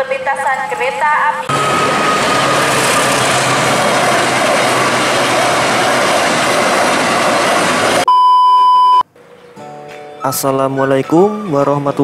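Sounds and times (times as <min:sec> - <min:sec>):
train wheels rumbling on rails: 0:01.5 - 0:08.1
high test-tone beep: 0:08.1 - 0:09.0.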